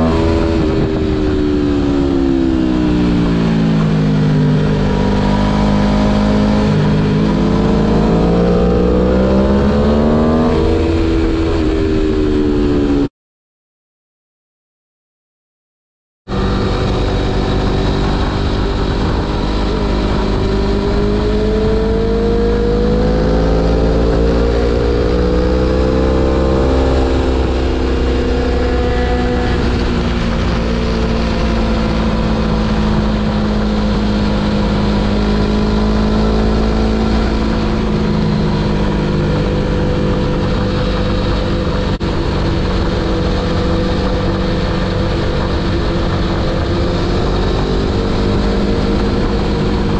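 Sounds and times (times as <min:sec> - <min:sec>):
motorcycle engine revving: 0:00.0 - 0:13.1, 0:16.3 - 0:49.9
wind rushing: 0:16.3 - 0:49.9.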